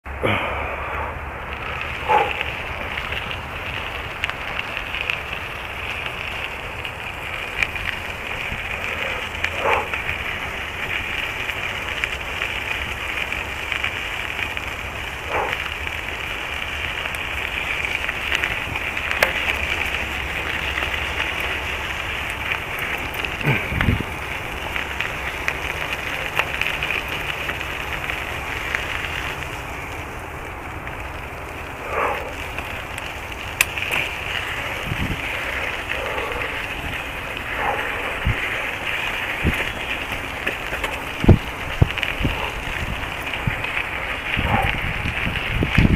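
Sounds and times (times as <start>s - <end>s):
footsteps on dirt trail: 1.6s - 45.6s.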